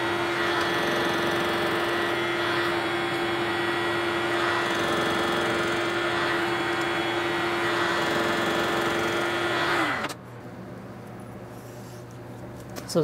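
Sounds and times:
end mill cutting metal: 0:00.0 - 0:10.2
milling machine humming: 0:00.0 - 0:10.2.

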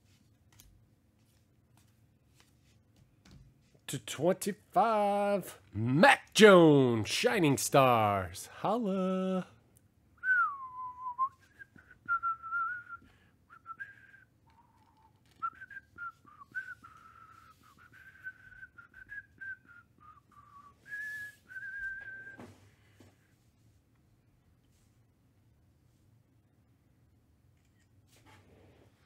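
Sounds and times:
man whistling a tune: 0:10.2 - 0:22.6.

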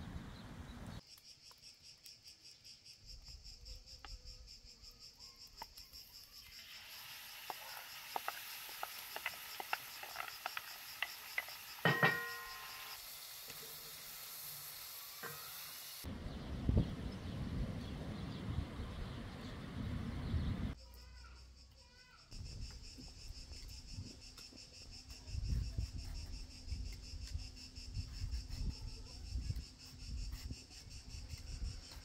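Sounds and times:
crickets chirping: 0:00.0 - 0:32.0
meat sizzling in a frying pan: 0:06.1 - 0:16.1
spoon knocking against pan: 0:11.4 - 0:12.6.

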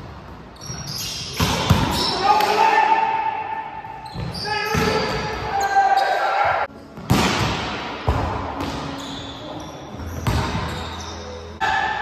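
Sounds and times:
ball bouncing in gymnasium: 0:03.8 - 0:05.4, 0:06.9 - 0:09.3, 0:10.0 - 0:11.0.

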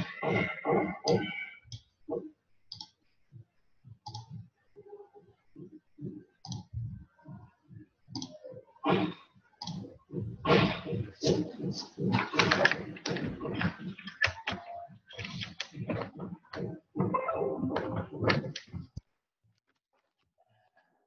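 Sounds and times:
computer mouse clicking: 0:02.7 - 0:03.0, 0:04.0 - 0:04.4, 0:06.4 - 0:06.7, 0:08.1 - 0:08.4, 0:09.6 - 0:09.8, 0:11.2 - 0:16.1
mouse scroll wheel turning: 0:11.2 - 0:16.6.

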